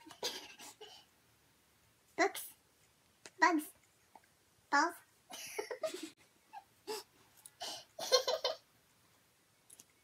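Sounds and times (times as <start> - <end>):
girls laughing: 5.3 - 6.2.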